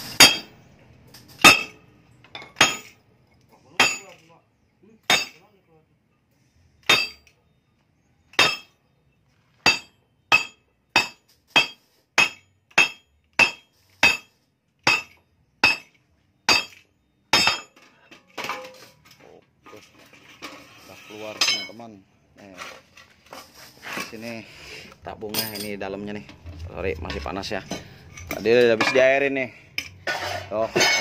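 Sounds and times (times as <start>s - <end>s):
irregular metal clatter: 0.0s - 4.4s, 17.4s - 24.4s, 25.2s - 31.0s.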